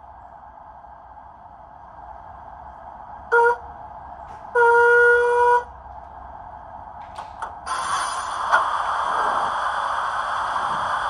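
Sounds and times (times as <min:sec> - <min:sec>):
steam engine background hiss: 0:07.6 - 0:11.0
hissing rush of steam: 0:07.7 - 0:11.0.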